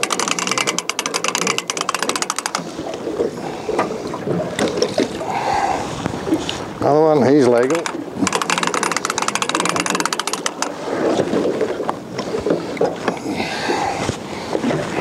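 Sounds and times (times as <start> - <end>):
fishing reel clicking rapidly: 0.0 - 2.6, 7.6 - 10.7.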